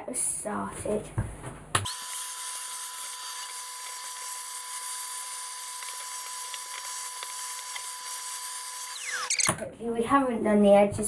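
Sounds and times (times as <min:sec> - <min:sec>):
vacuum cleaner running: 0:01.9 - 0:09.5.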